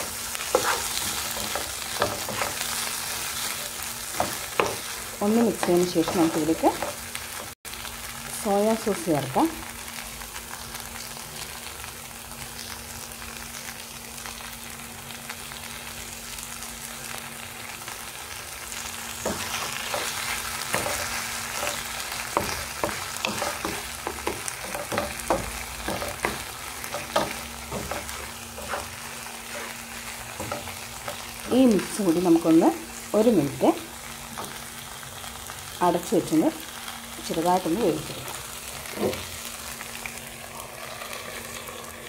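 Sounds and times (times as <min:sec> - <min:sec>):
food sizzling in a frying pan: 0:00.0 - 0:42.0
wooden spatula scraping a pan: 0:00.4 - 0:07.0, 0:19.3 - 0:32.0.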